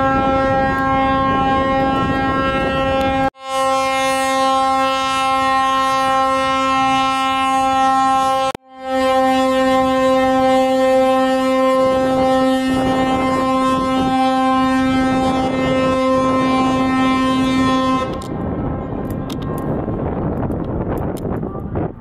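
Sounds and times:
ship's horn blast: 0.0 - 18.8.

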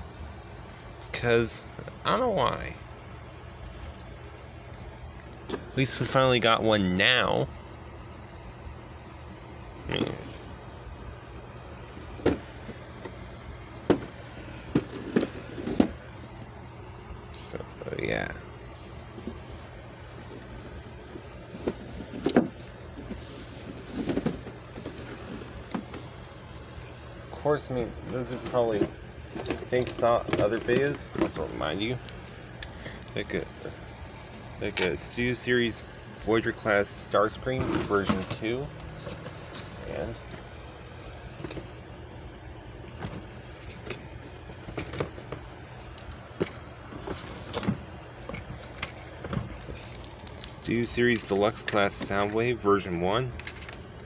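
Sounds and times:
steady low hum: 0.0 - 54.0
handling clicks and knocks: 28.1 - 33.2.

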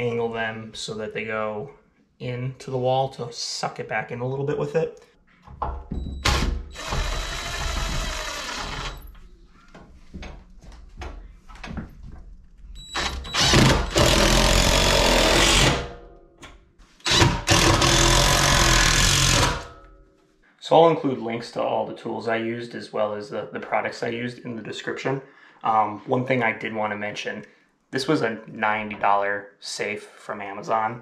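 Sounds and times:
impact driver hammering screws: 6.2 - 9.1, 13.0 - 15.9, 17.0 - 19.7.

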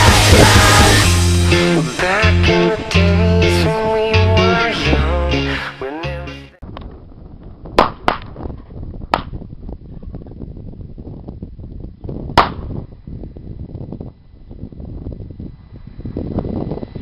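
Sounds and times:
song playing: 0.0 - 6.6
wind rumble on microphone: 6.6 - 17.0.

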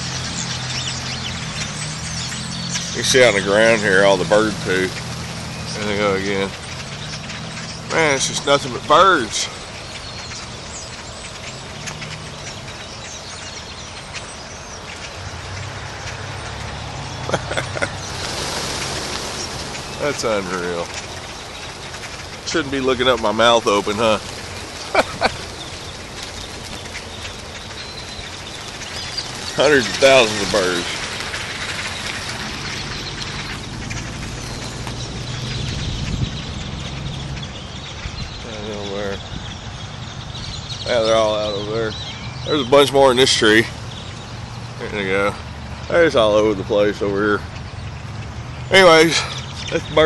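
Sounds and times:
flock of birds chirping: 0.0 - 50.0
low engine hum: 0.0 - 50.0
rushing sound: 17.6 - 36.2.

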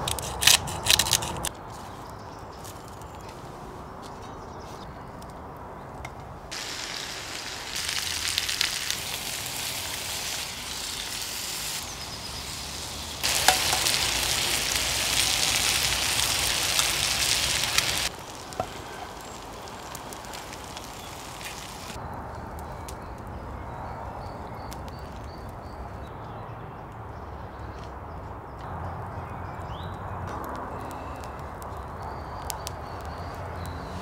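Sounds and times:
meat sizzling in a skillet: 6.5 - 22.0.

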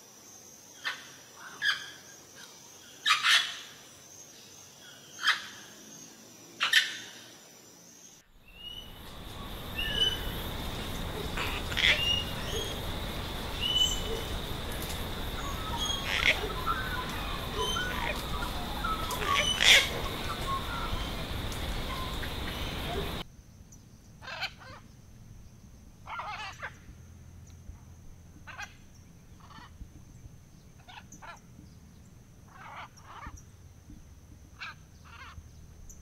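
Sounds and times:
small bird chirping: 8.4 - 24.9
sharp parrot calls: 8.5 - 23.2
parrot squawking: 8.6 - 23.2.

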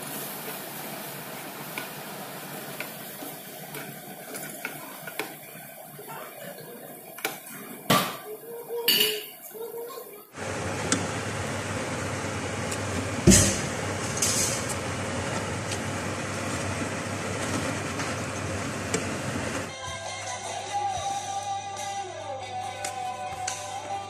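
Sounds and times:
mushrooms sizzling in frying pan: 0.0 - 8.4.

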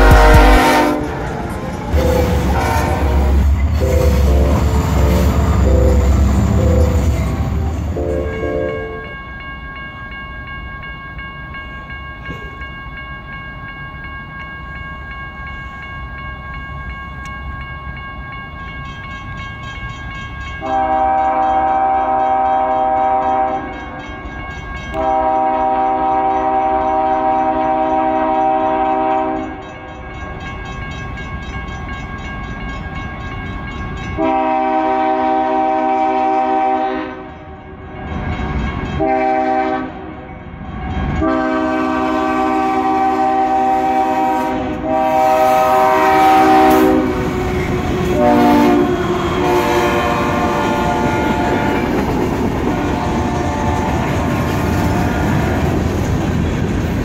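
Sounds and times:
locomotive air horn: 0.0 - 1.3, 2.0 - 7.1, 20.6 - 23.7, 24.9 - 29.4, 34.2 - 37.5, 39.0 - 40.1, 41.2 - 51.9, 52.7 - 55.7
locomotive engine rumble: 0.0 - 9.0
wheels rattling on rails: 0.0 - 35.3, 37.3 - 57.0.

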